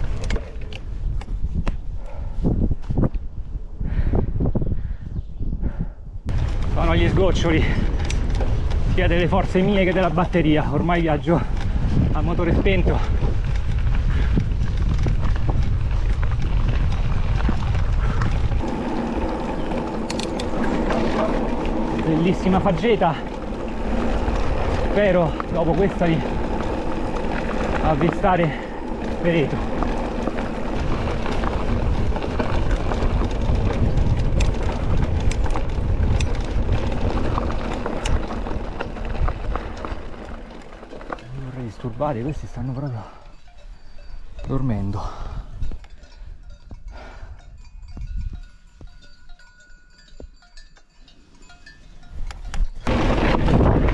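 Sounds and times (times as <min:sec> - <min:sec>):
bike clicks and rattles over stones: 0:00.0 - 0:01.7, 0:06.3 - 0:44.6, 0:50.1 - 0:53.9
wind buffeting microphone: 0:00.0 - 0:50.7, 0:51.6 - 0:53.9
tyres rumbling over trail: 0:06.3 - 0:45.6, 0:52.8 - 0:53.9.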